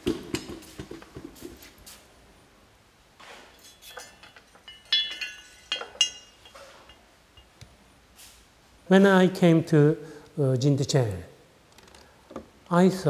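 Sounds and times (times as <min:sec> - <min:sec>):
porcelain clinking: 0:03.6 - 0:07.6.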